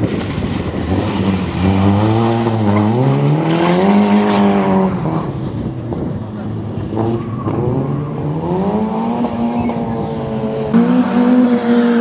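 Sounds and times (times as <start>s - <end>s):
car engine revving hard: 6.8s - 12.0s.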